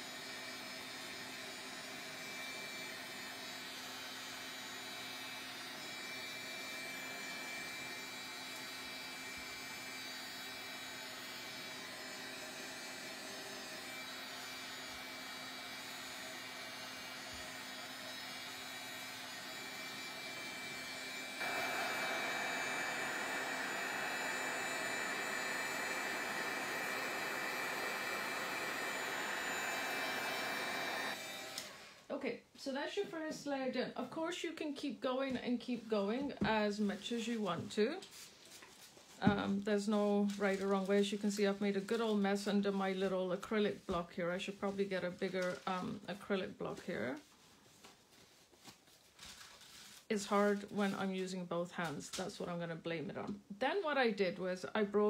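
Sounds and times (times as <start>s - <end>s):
heat gun blowing with whine: 0.0s - 32.1s.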